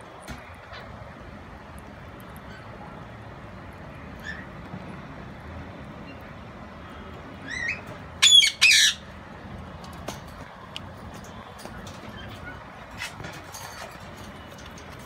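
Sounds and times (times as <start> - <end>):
parrot chirps: 7.5 - 9.1
parrot squawks: 7.5 - 9.1.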